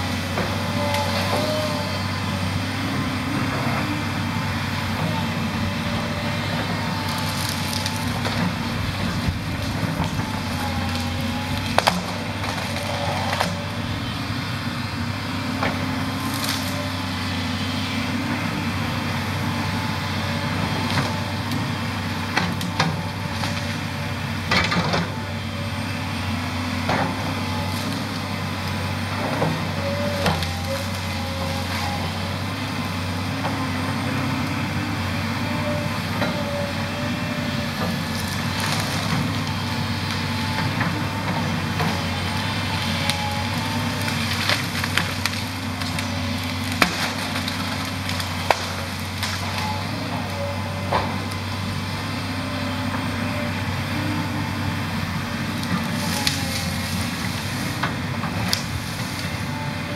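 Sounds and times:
excavator diesel engine running: 0:00.0 - 0:59.9
wood snapping and splintering: 0:07.0 - 0:13.6, 0:37.8 - 0:49.9, 0:55.6 - 0:59.2.

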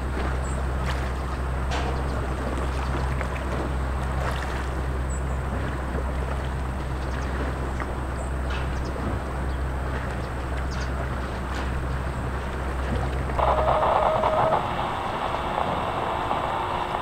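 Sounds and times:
deep machinery hum: 0:00.0 - 0:17.0.

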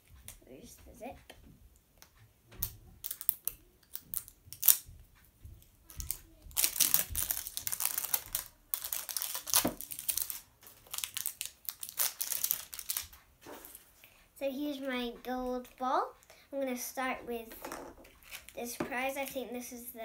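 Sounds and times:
wrapping crinkling and tearing: 0:03.0 - 0:04.8, 0:05.9 - 0:13.8, 0:18.2 - 0:18.6.

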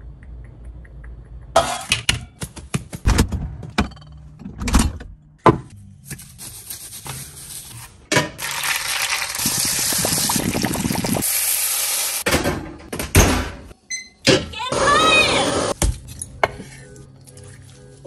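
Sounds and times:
chicken sizzling in hot fat: 0:08.4 - 0:12.2.

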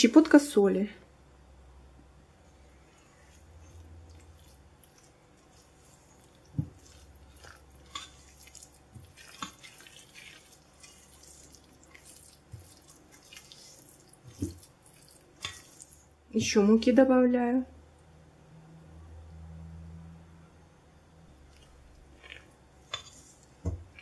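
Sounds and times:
spatula stirring batter in bowl: 0:02.5 - 0:16.6, 0:21.3 - 0:24.0.

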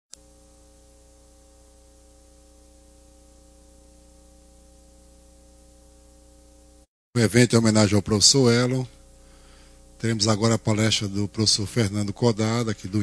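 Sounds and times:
electrical mains hum: 0:00.1 - 0:13.0
background hiss: 0:07.2 - 0:13.0.

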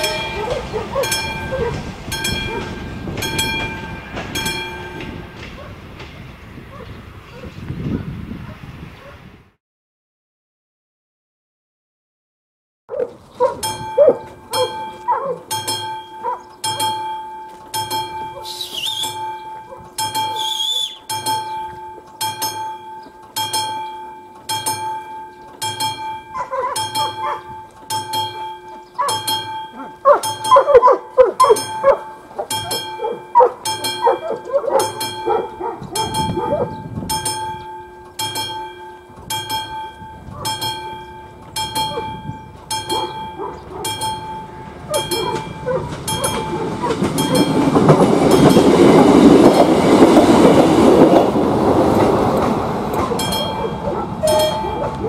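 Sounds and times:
dogs barking: 0:00.0 - 0:03.7, 0:05.4 - 0:05.9, 0:06.7 - 0:09.3, 0:12.9 - 0:17.0, 0:18.3 - 0:20.4, 0:26.2 - 0:27.7, 0:28.8 - 0:36.9, 0:40.2 - 0:40.8, 0:41.7 - 0:48.3, 0:50.8 - 0:55.0
level crossing warning bell: 0:00.0 - 0:06.6, 0:12.9 - 0:55.0.

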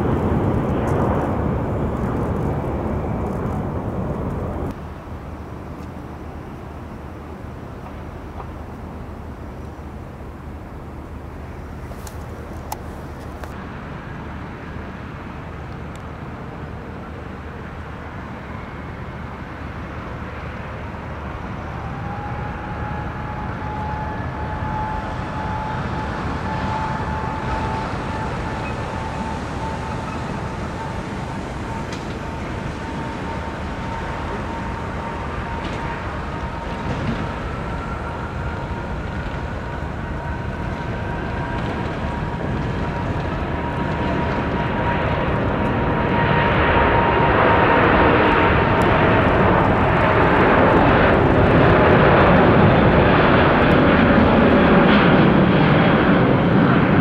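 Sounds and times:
jet engines rushing: 0:00.0 - 0:57.0
rising engine whine: 0:00.0 - 0:57.0
higher rising whine: 0:20.9 - 0:57.0.

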